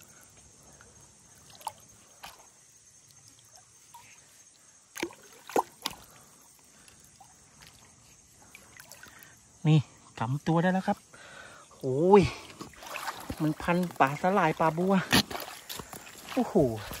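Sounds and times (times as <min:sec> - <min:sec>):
hand splashing in pond water: 0:01.3 - 0:04.2, 0:04.8 - 0:06.3, 0:07.0 - 0:09.3, 0:12.4 - 0:17.0.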